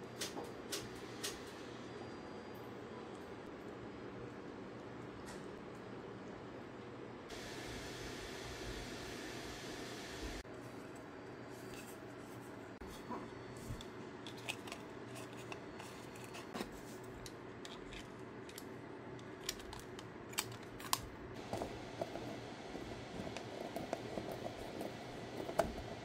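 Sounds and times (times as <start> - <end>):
plastic parts clicking and tapping: 17.2 - 22.4.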